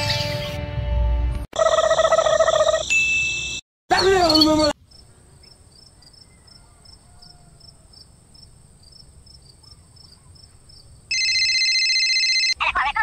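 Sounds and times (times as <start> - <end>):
insect chirps: 4.3 - 11.2.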